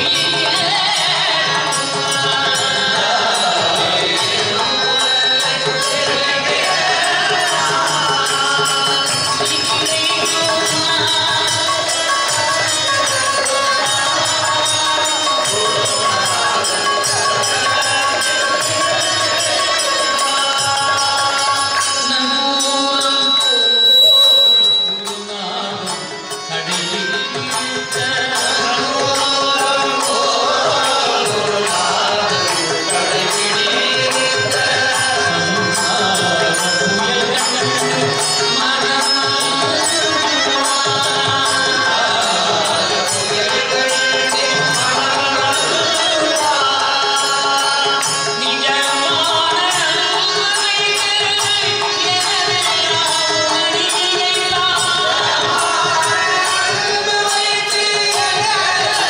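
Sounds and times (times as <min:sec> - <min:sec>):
harmonium: 0:00.0 - 0:59.0
men singing devotional song: 0:00.0 - 0:59.0.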